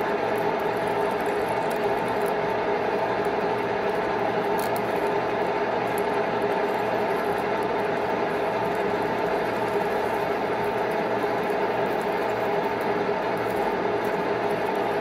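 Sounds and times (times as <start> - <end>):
scratchy ticks from drill chip: 3.2 - 15.0.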